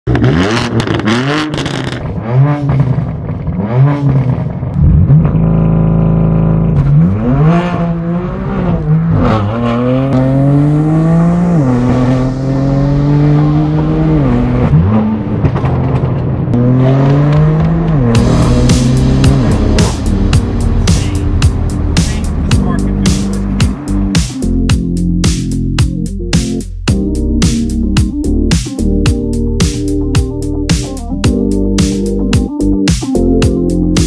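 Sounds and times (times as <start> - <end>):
exhaust crackles: 0.1 - 25.8
loud car exhaust revving: 0.1 - 25.8.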